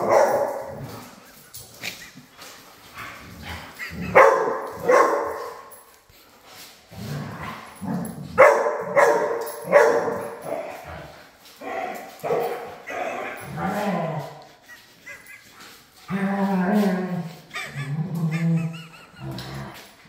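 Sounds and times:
dogs barking: 0.0 - 1.0, 3.8 - 5.8, 8.3 - 10.8, 11.6 - 14.3.

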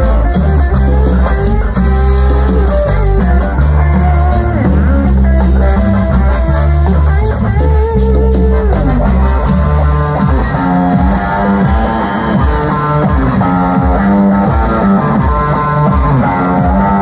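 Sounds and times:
electric guitar: 0.0 - 17.0
live cumbia band: 0.0 - 17.0.

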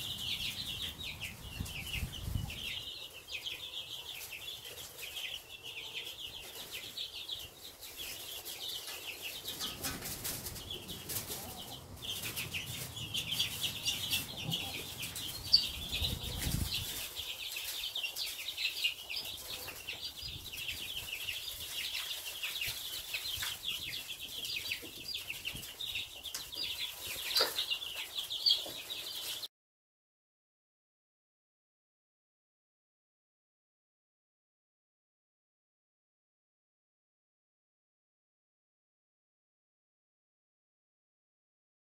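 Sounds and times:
chicks peeping: 0.0 - 29.5.

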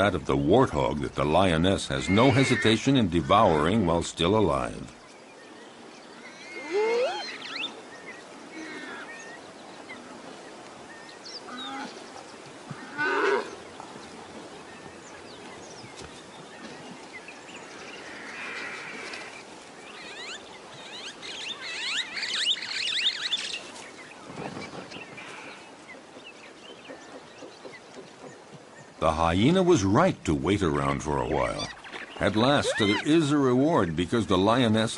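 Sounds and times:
warthog squealing in distress: 32.6 - 33.1.

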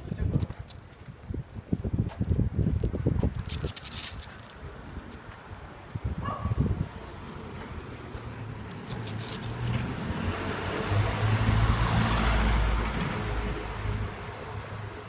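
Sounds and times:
truck driving past: 7.2 - 14.9.

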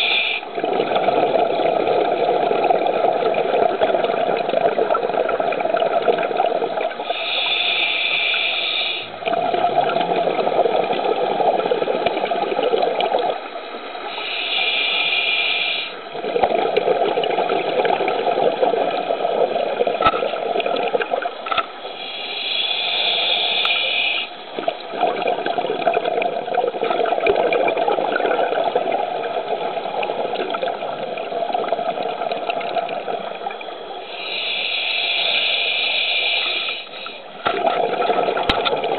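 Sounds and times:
regulator inhale hiss: 0.0 - 0.6, 7.0 - 9.2, 14.0 - 16.1, 21.8 - 24.5, 34.0 - 37.4
exhaled bubbles: 0.0 - 38.9.

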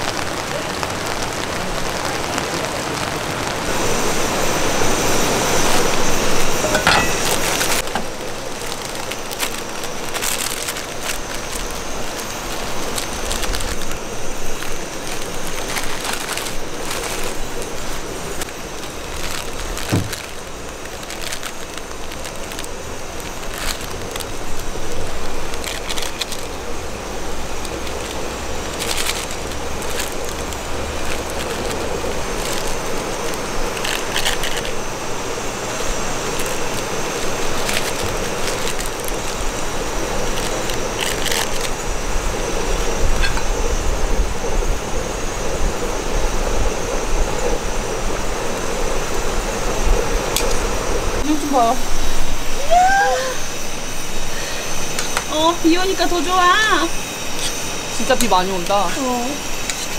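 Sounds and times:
heavy rain falling: 0.0 - 59.9
metal tongs clinking on pot: 6.6 - 8.1.

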